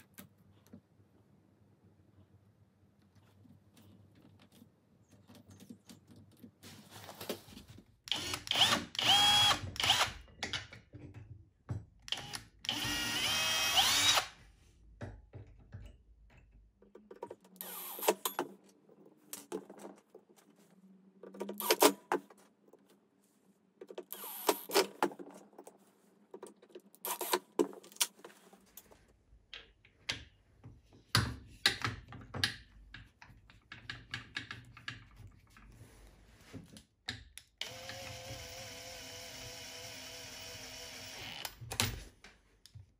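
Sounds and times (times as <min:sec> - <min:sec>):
cordless drill motor whining: 0:08.1 - 0:10.2, 0:12.1 - 0:14.3, 0:17.6 - 0:18.1, 0:24.1 - 0:24.8, 0:37.6 - 0:41.6.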